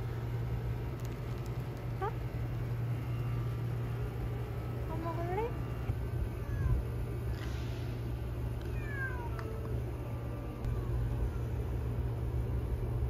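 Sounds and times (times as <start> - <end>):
steady low rumble: 0.0 - 13.0
cat meowing: 6.4 - 6.9, 8.6 - 9.7.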